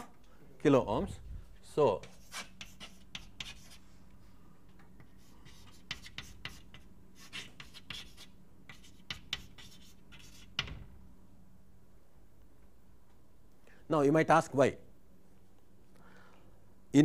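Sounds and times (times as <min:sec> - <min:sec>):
faint steady hum: 0:00.0 - 0:17.0
scratchy writing on a board: 0:02.0 - 0:03.8, 0:05.0 - 0:10.8.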